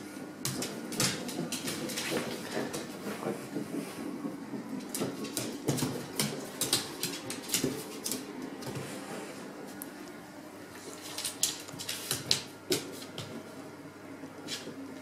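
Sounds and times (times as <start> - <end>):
dog claws tapping on wood floor: 4.8 - 8.8.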